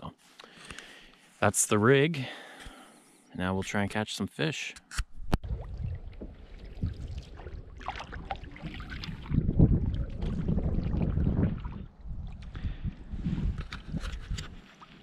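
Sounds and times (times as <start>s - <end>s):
paddle strokes in water: 6.0s - 12.5s.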